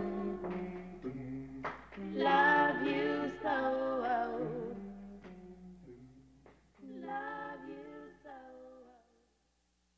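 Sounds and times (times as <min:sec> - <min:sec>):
woman singing softly: 0:00.0 - 0:00.6, 0:06.8 - 0:09.2.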